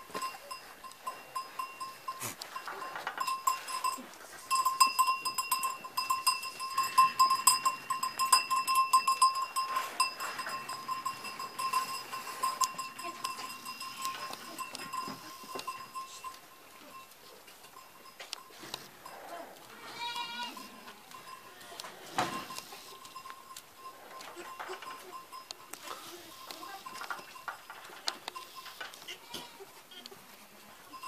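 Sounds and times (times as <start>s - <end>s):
goat bell jingling: 0.0s - 31.0s
goats bleating: 19.4s - 22.1s, 28.9s - 30.2s.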